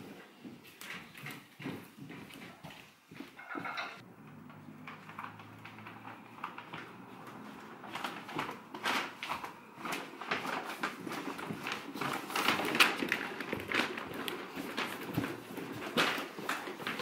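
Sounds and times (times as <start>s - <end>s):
footsteps on carpeted stairs: 0.0s - 4.0s.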